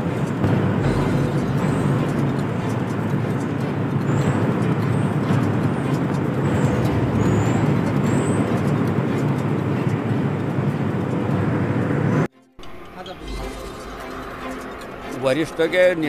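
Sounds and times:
low machinery rumble: 0.0 - 12.3.

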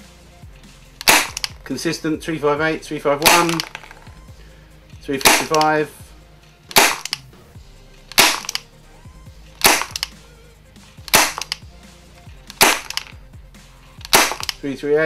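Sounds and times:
airsoft pistol gas pops: 1.0 - 1.6, 5.2 - 5.7, 6.7 - 7.2, 8.1 - 8.6, 9.6 - 10.2, 11.1 - 11.6, 12.5 - 13.1, 14.0 - 14.6.

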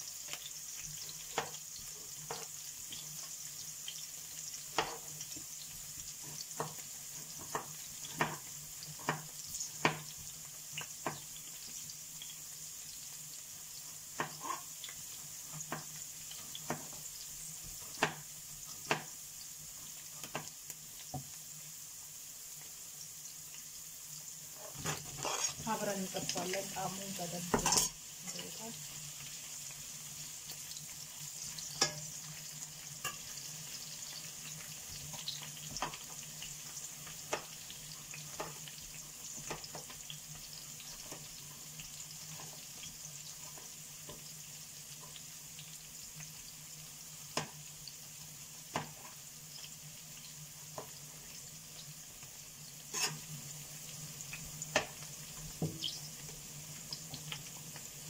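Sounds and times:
vegetables sizzling in oil: 0.0 - 58.0.

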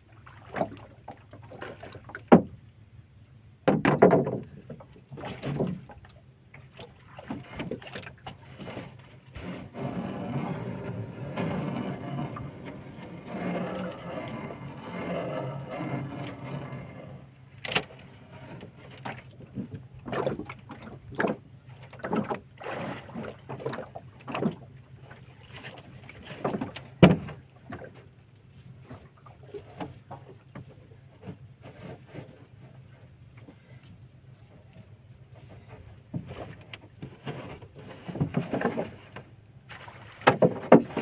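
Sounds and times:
water splashes: 0.0 - 2.7, 4.2 - 33.9, 34.5 - 41.0
line hauling through water: 0.0 - 41.0
trap knocking on hull: 3.6 - 4.5.

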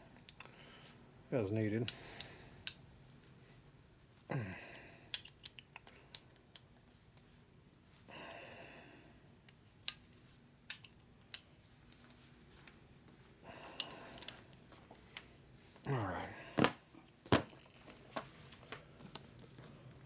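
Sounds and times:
person grunting: 4.3 - 4.8, 15.9 - 16.6
soft breath: 8.0 - 9.2.

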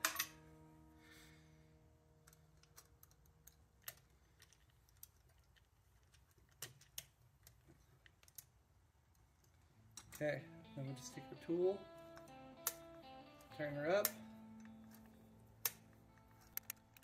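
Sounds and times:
guitar music: 10.2 - 17.0.

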